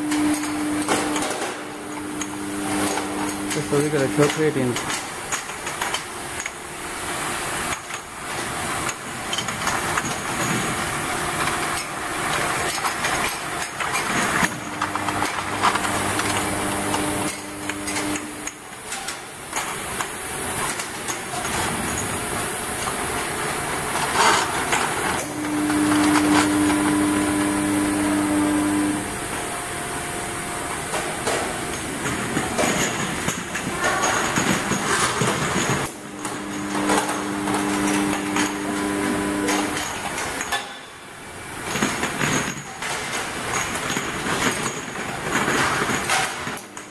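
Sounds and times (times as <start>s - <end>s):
machine hum: 0.0s - 5.2s, 9.8s - 40.4s.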